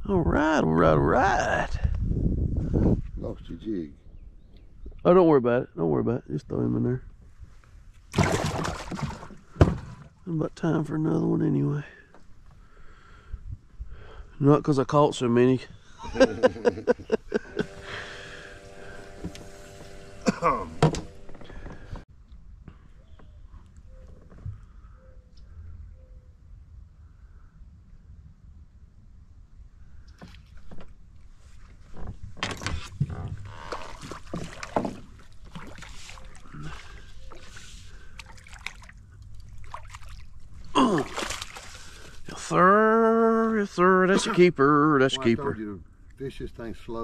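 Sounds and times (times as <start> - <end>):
water lapping against boat: 8.1 - 10.2, 31.6 - 42.4
hum of held tones: 17.3 - 22.0
person's voice: 42.3 - 45.8.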